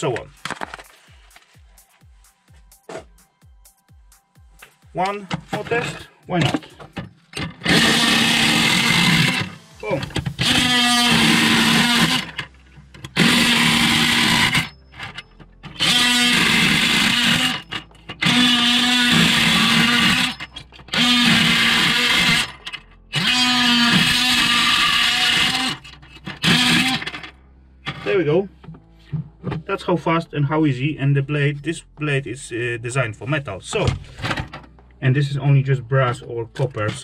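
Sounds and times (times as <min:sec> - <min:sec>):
oscillating multi-tool cutting: 0:07.6 - 0:27.2.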